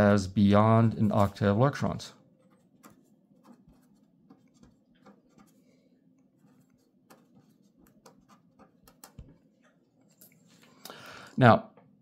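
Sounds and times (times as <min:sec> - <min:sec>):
marker scratching on paper: 0:02.4 - 0:05.6, 0:06.4 - 0:09.3.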